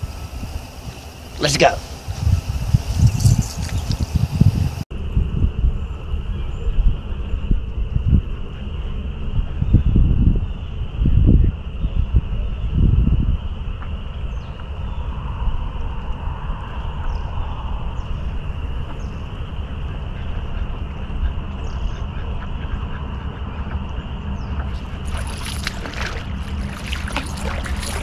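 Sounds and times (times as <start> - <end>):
wind buffeting microphone: 0.0 - 28.0
sharp crackling rustles: 24.7 - 28.0.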